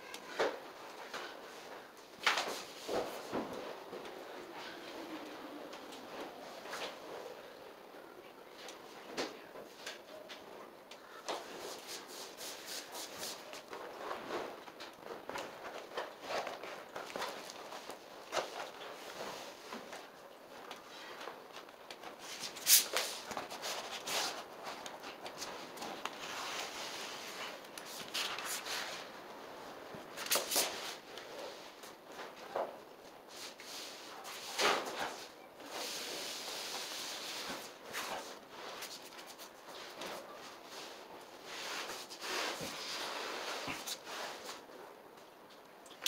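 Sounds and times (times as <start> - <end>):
vinyl sheet rustling and scraping: 0.0 - 7.8, 8.4 - 45.0
footsteps on floor: 2.2 - 5.0.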